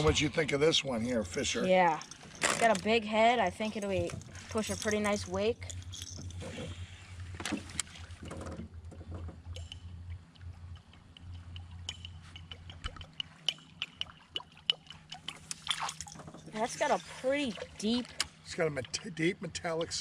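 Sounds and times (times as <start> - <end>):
lure tail clanking metallic clicks: 4.0 - 6.4.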